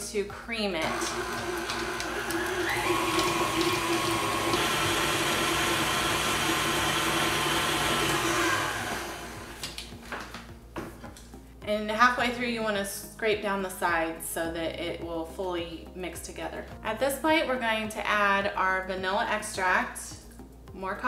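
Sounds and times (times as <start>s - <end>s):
stand mixer running: 0.8s - 9.6s.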